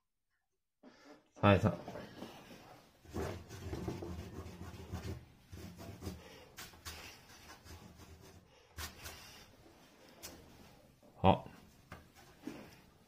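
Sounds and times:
pencil scratching on paper: 3.0s - 9.5s.

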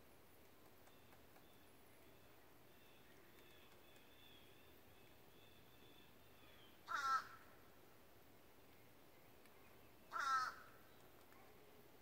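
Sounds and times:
crow cawing: 6.8s - 7.5s, 10.1s - 10.8s.

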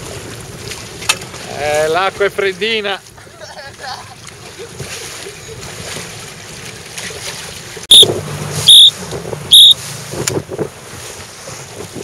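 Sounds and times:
water noise: 0.0s - 12.0s
wind: 0.0s - 12.0s
shrill whistle blasts: 8.7s - 8.9s, 9.5s - 9.8s.

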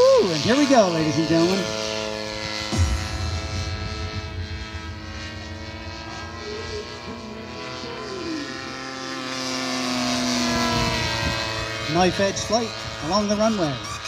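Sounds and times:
model airplane buzzing drone: 0.0s - 14.0s.

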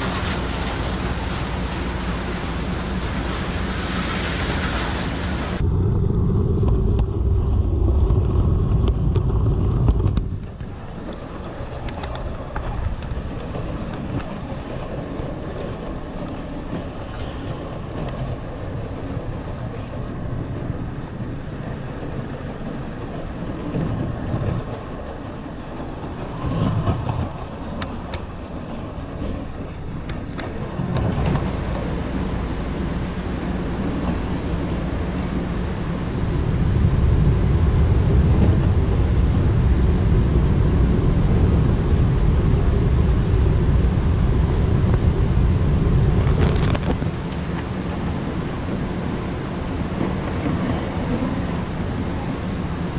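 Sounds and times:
loud low rumble: 5.5s - 10.6s, 31.5s - 47.2s
model train rolling on track: 10.4s - 40.7s.

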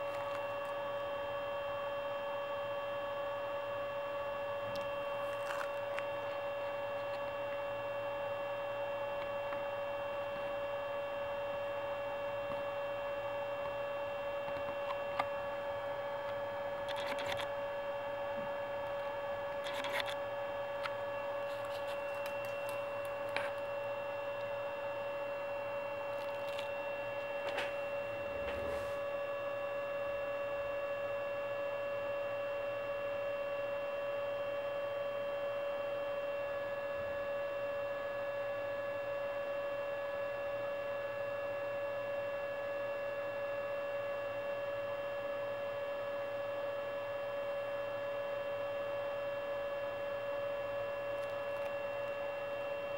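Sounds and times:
electrical hum: 0.0s - 52.9s.

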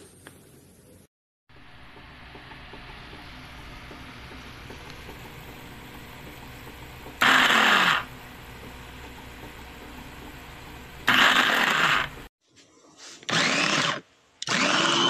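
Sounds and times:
food chopper motor whirring: 7.2s - 8.2s, 11.0s - 12.3s, 13.3s - 15.0s.

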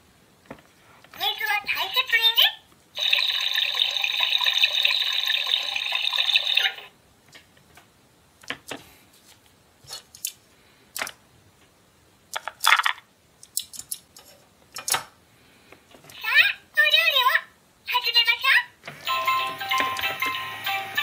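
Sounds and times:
electronic toy sound effect: 3.0s - 6.9s
plastic toy clicks and taps: 12.3s - 14.0s.

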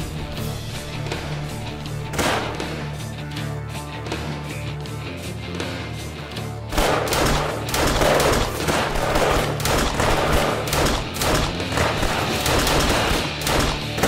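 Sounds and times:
revolver gunfire: 2.1s - 2.8s, 6.7s - 14.0s.

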